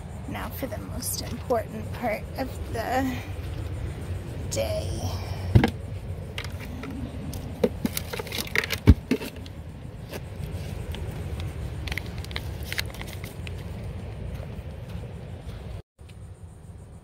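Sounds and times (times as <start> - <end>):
low rumble: 0.0 - 17.0
wrapper crinkling and knocks: 11.9 - 13.5.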